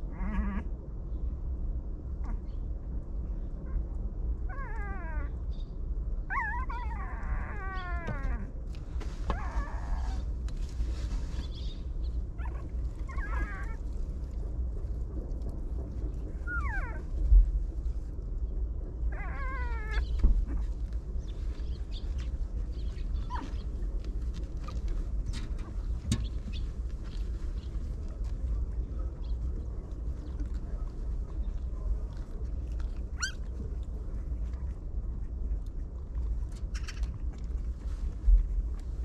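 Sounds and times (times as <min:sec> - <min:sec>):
low rumble: 0:00.0 - 0:39.0
puppies whining: 0:04.5 - 0:05.4, 0:06.3 - 0:08.6, 0:09.2 - 0:10.3, 0:12.3 - 0:13.8, 0:16.3 - 0:17.2, 0:19.1 - 0:23.8, 0:30.1 - 0:33.9.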